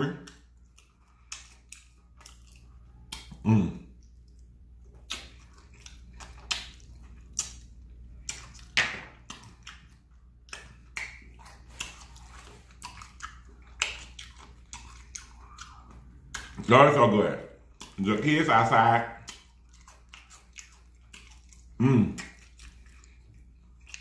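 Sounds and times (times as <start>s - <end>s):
wet lip smacks and chewing: 0.1s - 16.7s, 17.5s - 24.0s
low voiced hum: 2.6s - 4.2s, 21.6s - 22.4s.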